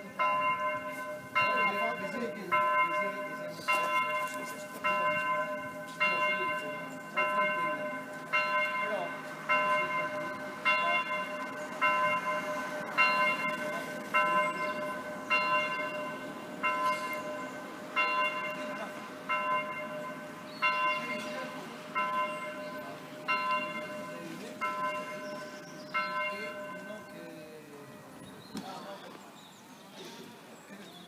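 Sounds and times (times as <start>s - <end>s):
electronic church bell tolling: 0.0s - 28.2s.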